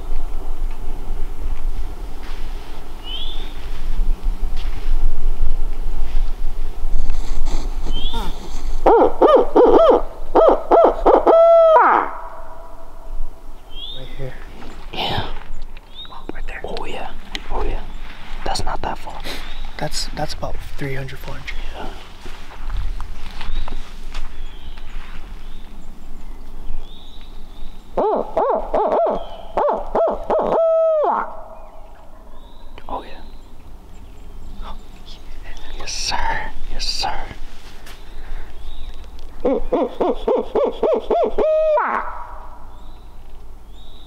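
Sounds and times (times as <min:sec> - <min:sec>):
owl hoot call: 0:07.9 - 0:12.8, 0:28.0 - 0:32.4, 0:39.4 - 0:42.8.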